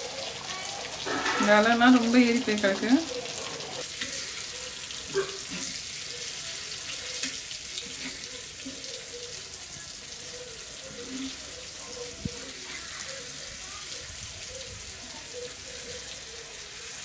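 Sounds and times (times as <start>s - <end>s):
fish sizzling in oil: 0.0s - 17.0s
steel spatula scraping: 1.0s - 1.8s, 5.2s - 6.0s, 7.0s - 8.9s.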